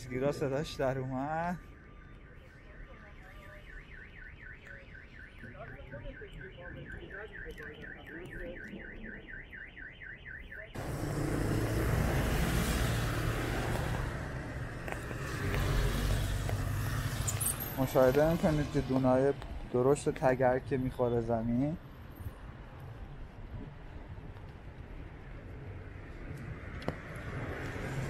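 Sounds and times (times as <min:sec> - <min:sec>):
car alarm warbling: 0:00.0 - 0:11.0.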